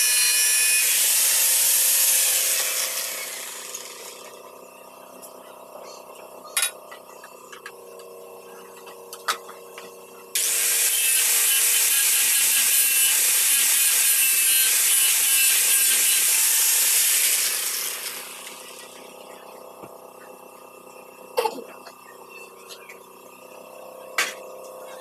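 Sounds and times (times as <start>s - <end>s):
angle grinder on wooden board: 0.0s - 4.4s, 10.4s - 19.2s
grinder spinning down: 0.0s - 4.4s, 10.4s - 19.6s.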